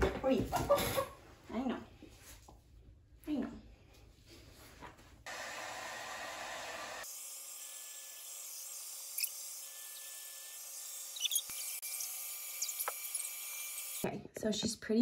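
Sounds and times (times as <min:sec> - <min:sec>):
blow dryer running: 0:05.3 - 0:07.2.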